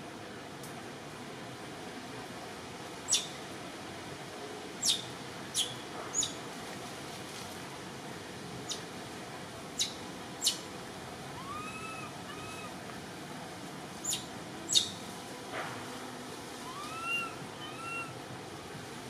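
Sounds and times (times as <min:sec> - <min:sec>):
steady hiss: 0:00.0 - 0:19.0
soft arched bird call: 0:09.8 - 0:10.7, 0:11.4 - 0:12.7, 0:14.0 - 0:15.0, 0:16.6 - 0:18.2.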